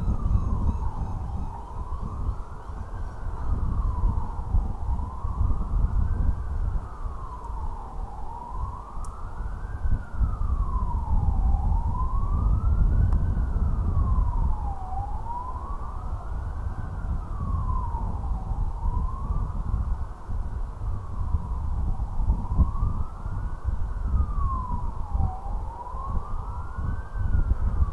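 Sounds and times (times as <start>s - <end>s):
siren wailing: 0.0s - 27.9s.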